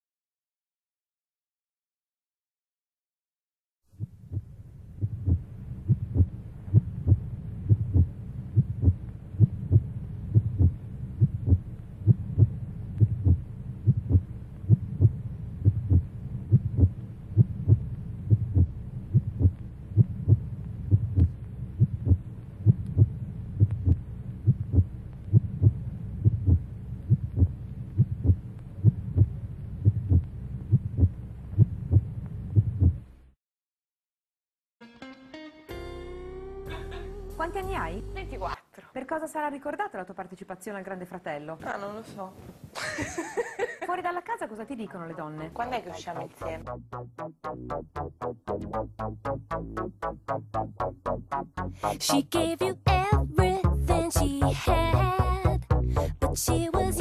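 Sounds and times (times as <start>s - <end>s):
heartbeat-like thumping: 4.0s - 33.1s
low droning hum: 4.1s - 33.3s, 36.1s - 38.6s.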